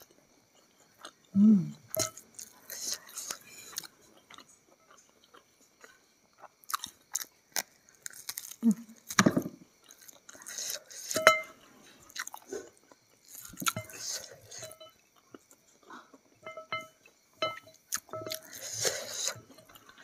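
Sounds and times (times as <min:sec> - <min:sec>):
person biting and chewing chicken: 0:06.4 - 0:09.2.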